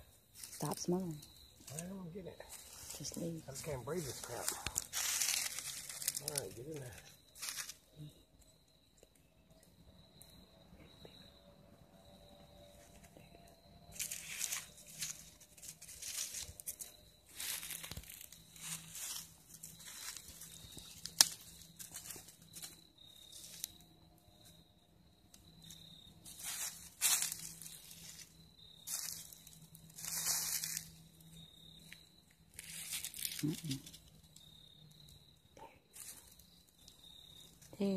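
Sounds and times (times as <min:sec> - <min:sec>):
dry leaves and twigs crunching: 0:00.3 - 0:08.1, 0:13.9 - 0:24.6, 0:25.4 - 0:34.7, 0:35.9 - 0:37.9.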